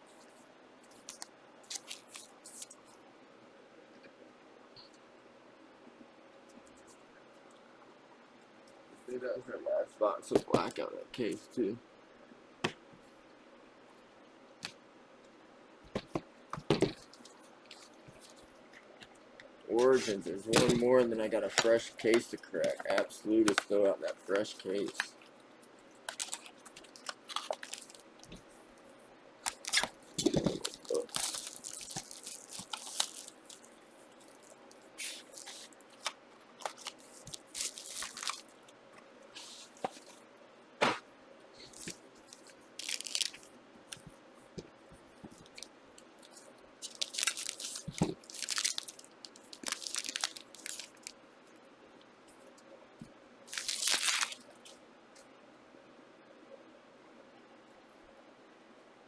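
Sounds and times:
card wrappers crinkling and tearing: 0:01.0 - 0:02.8, 0:19.8 - 0:25.1, 0:26.0 - 0:28.3, 0:29.4 - 0:38.6, 0:41.6 - 0:44.0, 0:45.4 - 0:51.2, 0:53.5 - 0:54.7.

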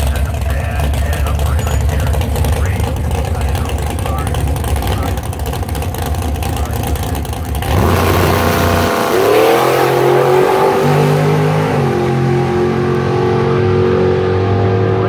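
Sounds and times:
drag racing car accelerating: 0:00.0 - 0:15.0.

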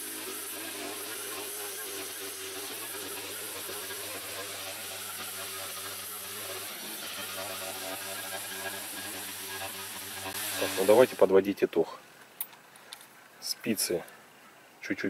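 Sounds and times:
cutting head spinning through grass: 0:00.0 - 0:11.2
brushcutter engine running: 0:00.0 - 0:11.4.

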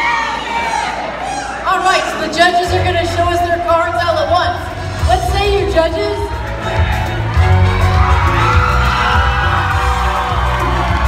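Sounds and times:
crowd cheering and whooping: 0:00.0 - 0:01.7, 0:06.2 - 0:11.0.

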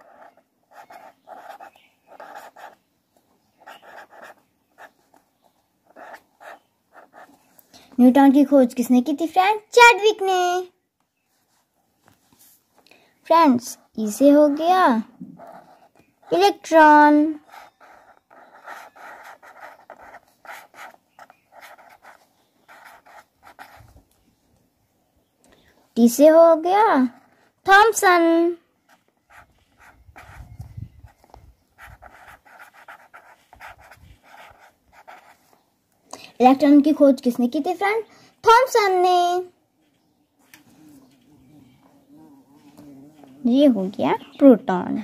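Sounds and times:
pen scratching on paper: 0:00.0 - 0:02.8, 0:03.5 - 0:07.4, 0:15.2 - 0:24.1, 0:28.9 - 0:35.6, 0:40.5 - 0:43.6.

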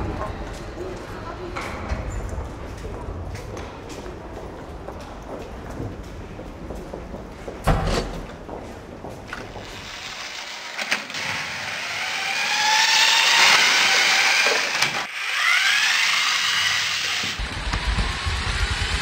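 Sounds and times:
toy train motor whining: 0:09.8 - 0:19.0.

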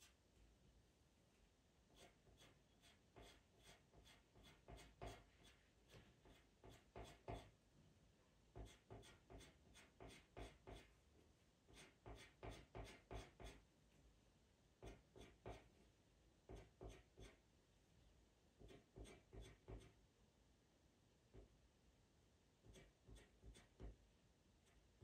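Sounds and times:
pencil scratching on paper: 0:01.9 - 0:07.5, 0:08.6 - 0:10.9, 0:11.7 - 0:13.6, 0:14.8 - 0:15.8, 0:16.5 - 0:17.4, 0:18.6 - 0:20.0, 0:22.6 - 0:23.9.

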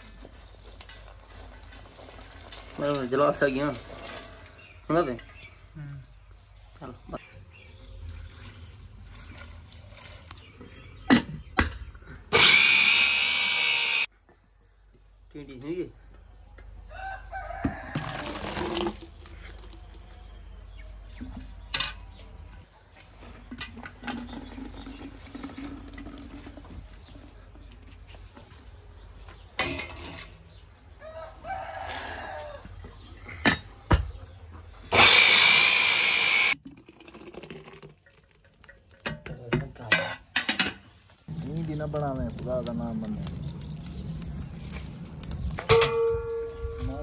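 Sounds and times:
electric mixer grinder running: 0:12.4 - 0:14.1, 0:34.9 - 0:36.6.

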